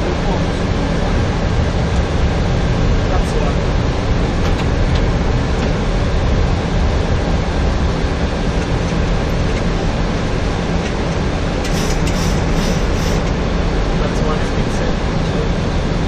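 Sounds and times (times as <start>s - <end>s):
air rushing past cockpit: 0.0s - 16.0s
aircraft engine hum: 0.0s - 16.0s.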